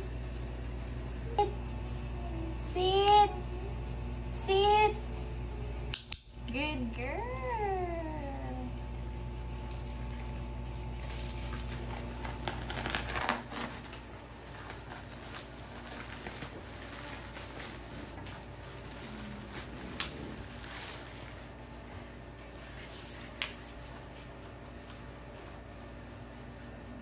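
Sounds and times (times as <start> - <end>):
low hum: 0.0 - 27.0
plastic bag rustling: 10.9 - 22.2.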